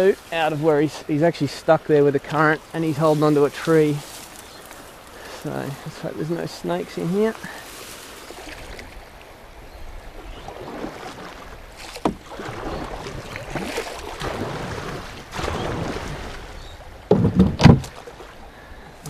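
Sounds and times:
paddle strokes splashing water: 0.0 - 19.0
knocks on canoe: 11.8 - 13.0, 17.1 - 18.0.

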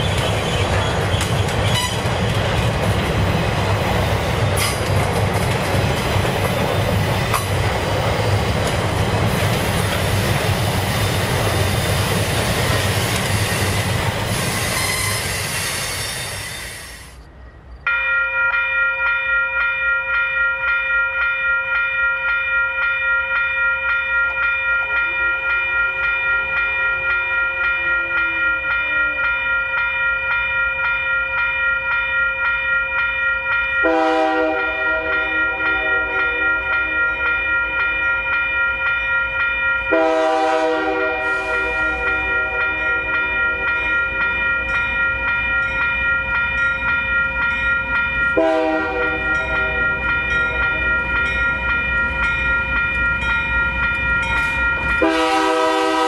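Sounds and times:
train horn blasts: 1.7 - 2.1, 14.6 - 15.4, 33.8 - 37.0, 39.9 - 42.9, 48.4 - 49.8, 55.0 - 56.0
railroad crossing bell ringing: 1.7 - 56.0.

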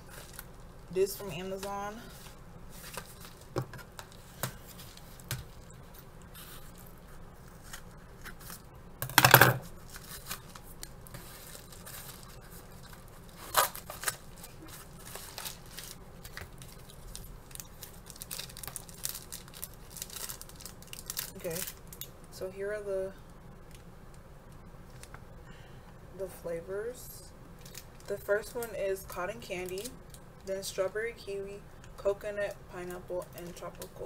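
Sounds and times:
padded mailer rustling: 0.1 - 8.6, 9.6 - 21.8.

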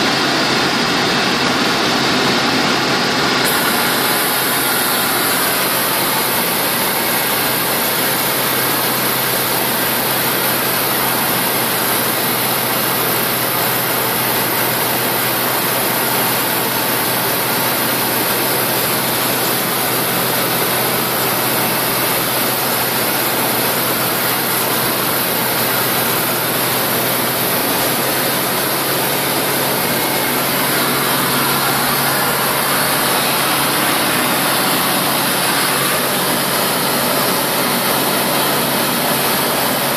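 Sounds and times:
propeller plane engine running: 0.0 - 39.9
rush of airflow: 20.8 - 39.9.

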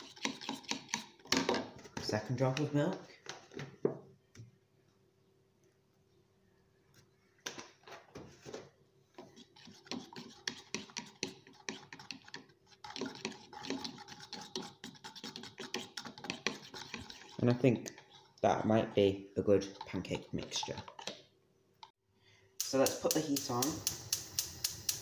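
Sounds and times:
fork beating batter in glass jug: 0.0 - 2.7, 9.2 - 18.6, 19.4 - 21.2.

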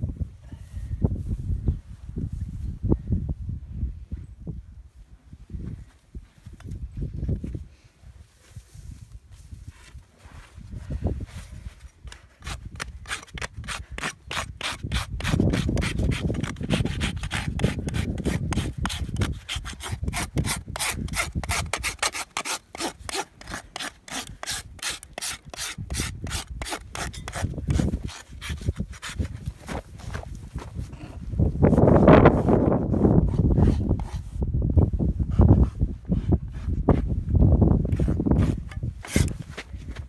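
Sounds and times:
rasp filing a hoof: 12.0 - 29.5, 33.2 - 34.4, 37.9 - 39.6.

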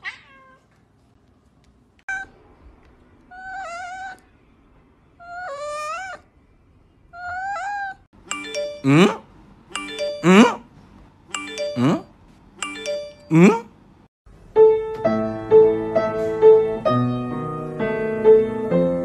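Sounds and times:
cat meowing: 0.0 - 0.7, 3.3 - 4.3, 7.1 - 8.0
ringing chime-like tones: 8.3 - 9.2, 9.8 - 10.6, 11.3 - 13.4.

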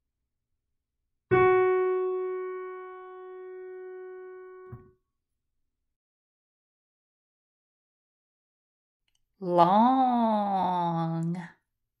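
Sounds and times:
piano note: 1.3 - 5.0.

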